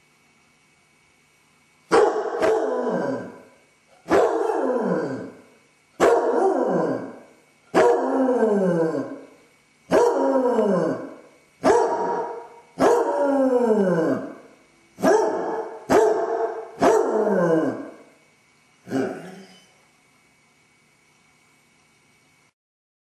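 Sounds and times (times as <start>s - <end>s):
dog howling: 2.0s - 3.4s, 4.1s - 5.4s, 6.0s - 9.3s, 9.9s - 18.0s.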